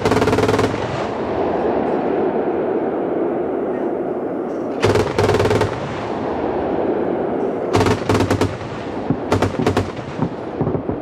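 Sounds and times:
autocannon rapid bursts: 0:00.0 - 0:01.0, 0:09.3 - 0:10.3
rumbling echo of gunfire: 0:00.0 - 0:02.3, 0:04.8 - 0:11.0.

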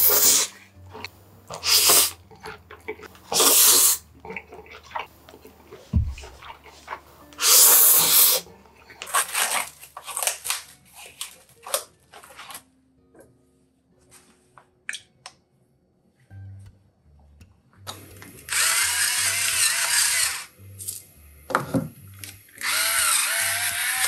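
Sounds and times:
man slurping noodles: 0:00.0 - 0:05.1, 0:07.4 - 0:08.5
wet chewing and smacking: 0:00.8 - 0:07.6.

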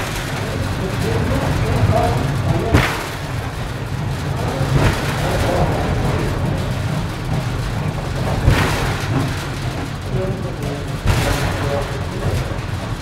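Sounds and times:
funicular rumbling on rails: 0:00.0 - 0:13.0
sharp knock: 0:02.6 - 0:03.4.

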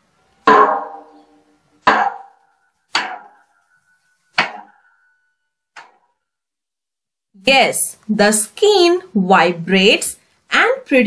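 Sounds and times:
drum head struck: 0:00.4 - 0:01.1.

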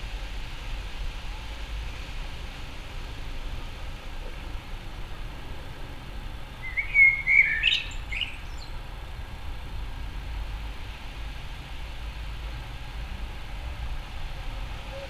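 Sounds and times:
blackbird singing: 0:06.6 - 0:08.8.

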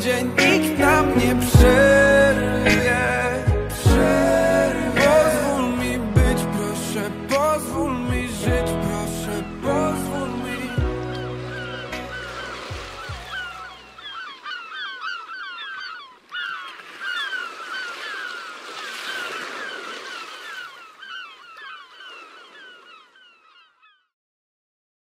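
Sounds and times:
music: 0:00.0 - 0:13.6
flock of birds calling: 0:09.1 - 0:24.1.

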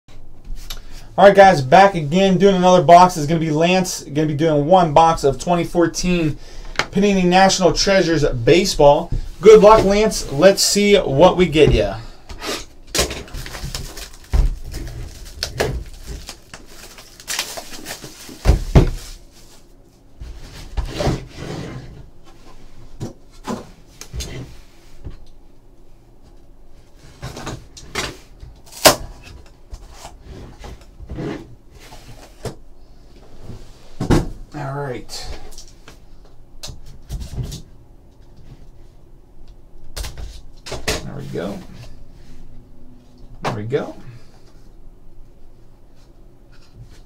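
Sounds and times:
plastic wrap rustling: 0:12.9 - 0:20.0.

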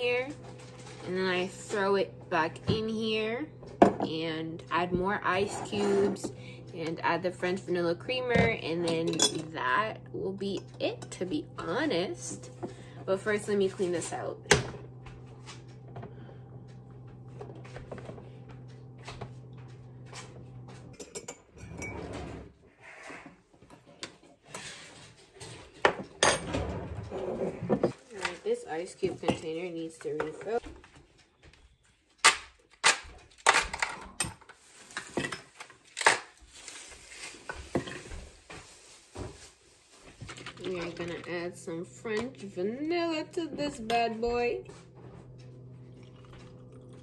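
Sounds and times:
coffee maker humming: 0:00.0 - 0:22.6, 0:40.1 - 0:47.0.

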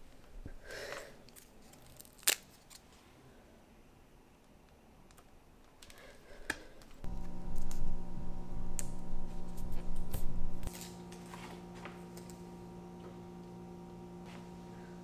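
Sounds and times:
low handling rumble: 0:07.0 - 0:10.7
steady low hum: 0:07.0 - 0:15.0.

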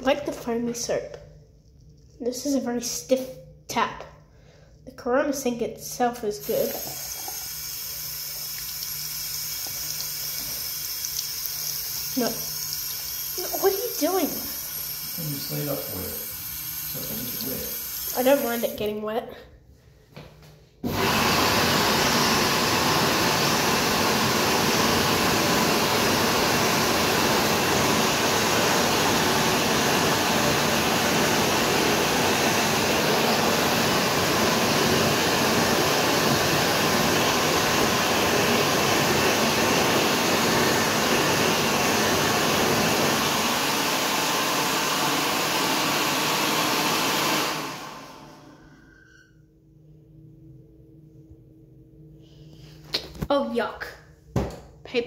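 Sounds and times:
hand dryer blowing air: 0:06.2 - 0:19.0, 0:20.8 - 0:48.7.

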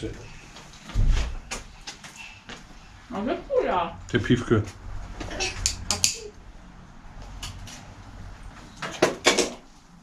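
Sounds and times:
knocks and clunks of tools: 0:08.8 - 0:09.6.

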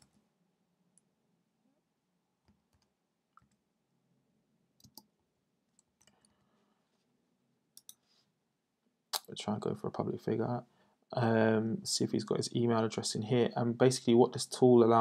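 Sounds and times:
faint keyboard clicks: 0:04.8 - 0:05.1, 0:05.7 - 0:06.4, 0:07.8 - 0:08.1.

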